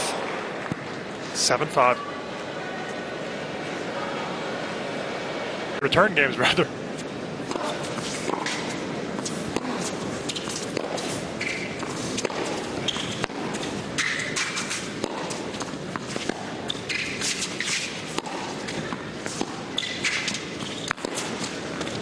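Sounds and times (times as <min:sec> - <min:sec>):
crowd hum: 0:00.0 - 0:22.0
shoes squeaking: 0:06.9 - 0:22.0
tennis ball struck and bouncing: 0:07.5 - 0:22.0.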